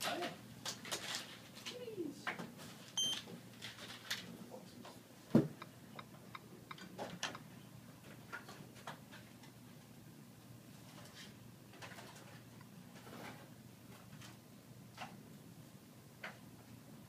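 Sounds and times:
payment terminal beep: 3.0 - 3.2
thump: 5.3 - 5.6.

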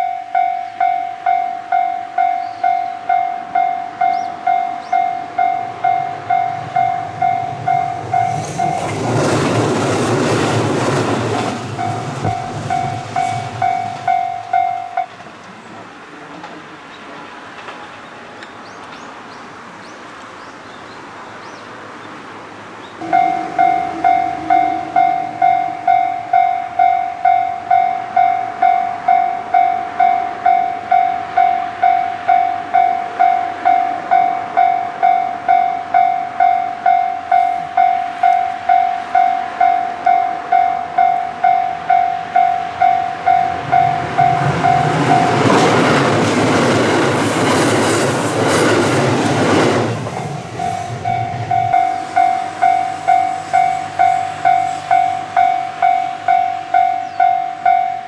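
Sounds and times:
level-crossing warning bell: 0.0 - 9.4, 11.0 - 15.5, 23.0 - 46.2, 50.2 - 58.0
train wheels on rails: 0.0 - 58.0.

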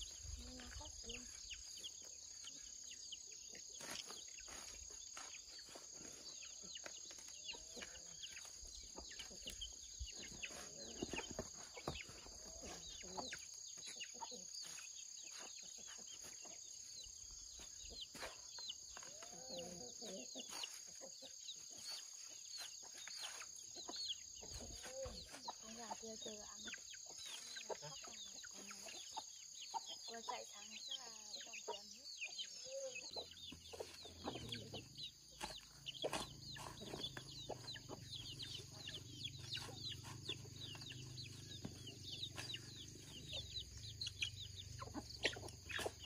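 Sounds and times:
chickens clucking: 0.0 - 46.0.

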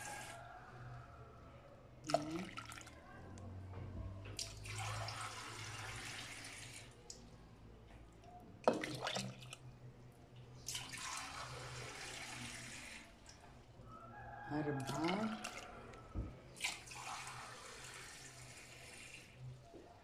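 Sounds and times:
water pouring into pot: 4.4 - 7.0, 8.7 - 9.6, 10.6 - 13.3, 16.6 - 19.4.

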